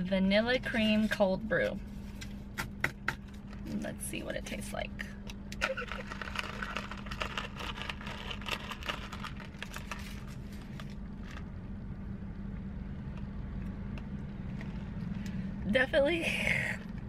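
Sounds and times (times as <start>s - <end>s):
low hum inside car: 0.0s - 17.0s
ice rattling in plastic cup: 5.6s - 11.4s.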